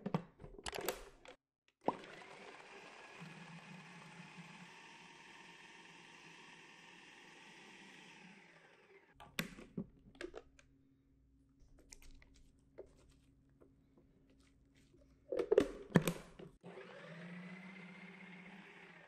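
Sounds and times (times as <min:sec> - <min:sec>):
food processor motor hum: 0:01.8 - 0:09.2, 0:16.6 - 0:19.0
plastic lid clicking: 0:15.4 - 0:16.4.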